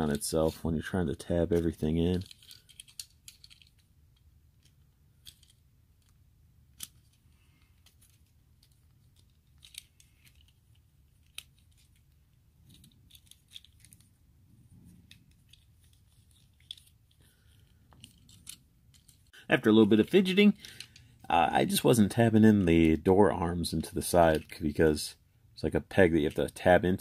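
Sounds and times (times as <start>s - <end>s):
plastic toy parts clicking: 1.6s - 14.2s, 14.9s - 19.3s, 20.0s - 21.1s.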